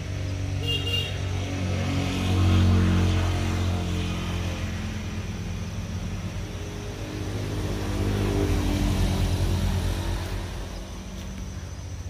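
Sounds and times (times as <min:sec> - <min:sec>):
vehicle engines droning: 0:00.0 - 0:12.0.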